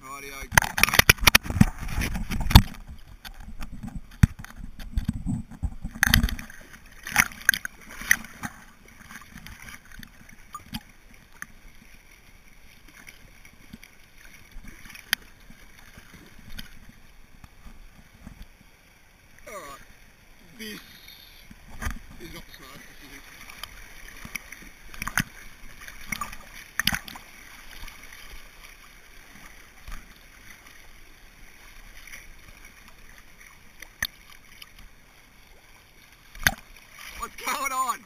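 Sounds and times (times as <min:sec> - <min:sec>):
water lapping and gurgling: 0:00.0 - 0:38.0
river water splashing: 0:00.1 - 0:38.0.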